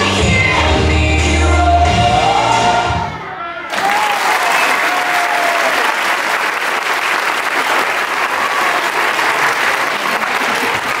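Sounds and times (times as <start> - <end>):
children applauding: 3.7 - 11.0.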